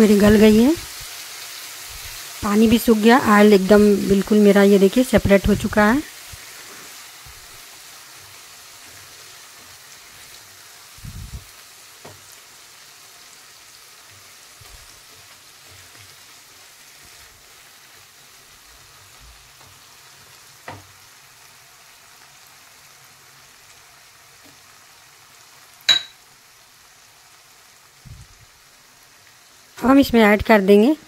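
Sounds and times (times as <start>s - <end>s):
leaves sizzling in oil: 0.0s - 31.0s.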